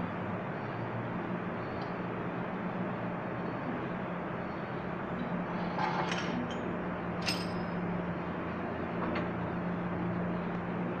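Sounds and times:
steady workshop hum: 0.0s - 11.0s
metal part clinking: 7.2s - 7.8s.

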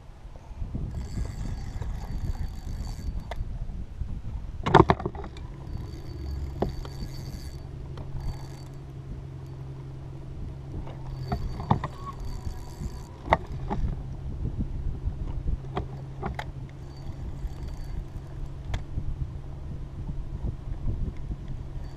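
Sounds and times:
low hum: 0.0s - 21.9s
wind on microphone: 0.0s - 21.9s
rod and reel knocks and clicks: 0.9s - 3.4s, 4.7s - 9.9s, 10.6s - 14.0s, 15.2s - 18.9s.

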